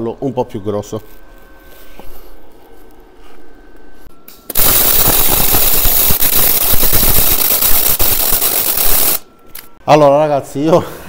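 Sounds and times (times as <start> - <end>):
welding arc crackling: 4.4 - 9.7.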